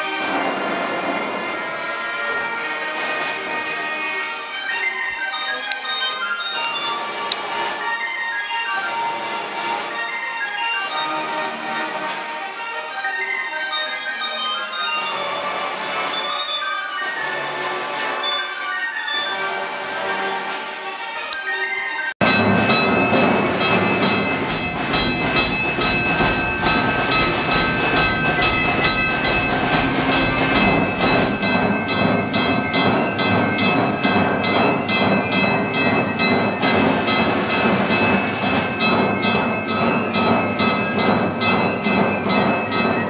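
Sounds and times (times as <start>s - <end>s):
mechanical orchestra machine: 21.2s - 43.0s.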